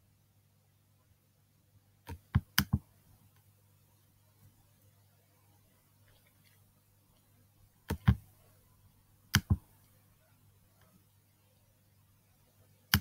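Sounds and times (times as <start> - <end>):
faint low hum: 0.0 - 13.0
touchpad clicks: 2.1 - 2.8, 7.8 - 8.3, 9.3 - 9.7.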